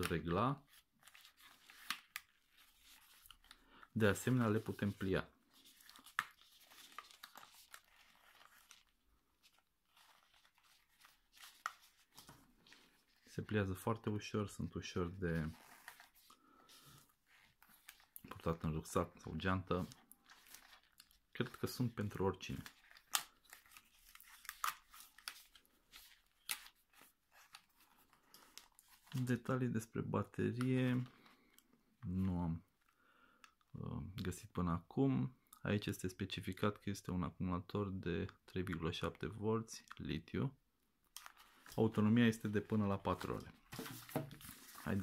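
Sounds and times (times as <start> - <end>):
handling rustle: 41.2 - 45.0.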